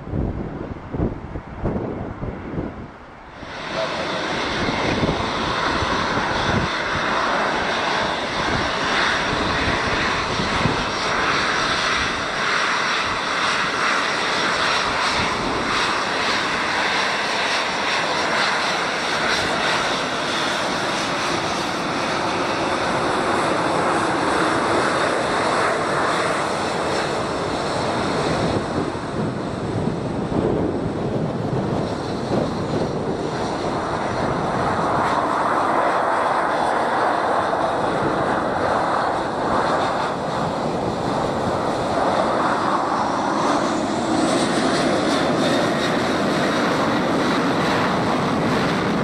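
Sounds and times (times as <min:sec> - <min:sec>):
jet engines at takeoff thrust: 0:00.0 - 0:49.0.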